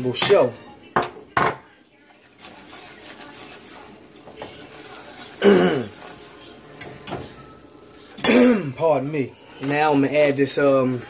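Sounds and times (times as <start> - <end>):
whisk swishing in sauce: 2.0 - 6.6
man clearing throat: 5.4 - 5.9, 8.2 - 8.8.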